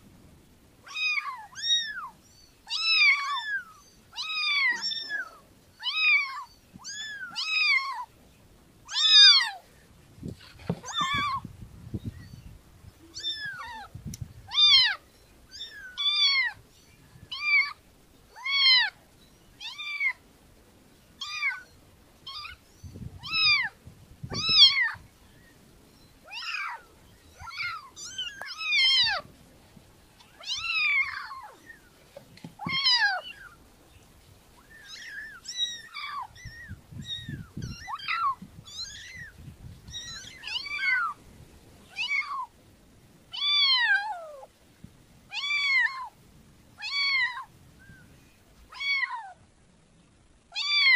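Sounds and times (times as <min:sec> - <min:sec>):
kitten meowing: 0:00.9 - 0:08.1, 0:08.9 - 0:09.6, 0:10.8 - 0:11.4, 0:13.1 - 0:13.9, 0:14.5 - 0:16.6, 0:21.2 - 0:21.6, 0:23.2 - 0:25.0, 0:26.3 - 0:26.8, 0:27.4 - 0:29.2, 0:30.4 - 0:31.6, 0:32.6 - 0:33.5, 0:34.6 - 0:41.2, 0:41.9 - 0:42.5, 0:45.3 - 0:46.1, 0:46.8 - 0:47.5, 0:48.7 - 0:49.4, 0:50.6 - 0:50.9.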